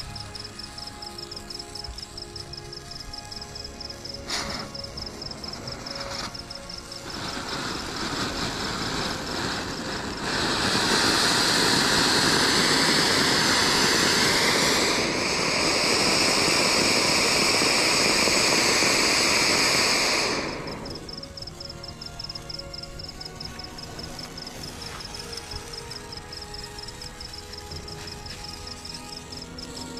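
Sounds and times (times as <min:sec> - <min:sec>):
fountain firework hissing: 0:00.0 - 0:29.9.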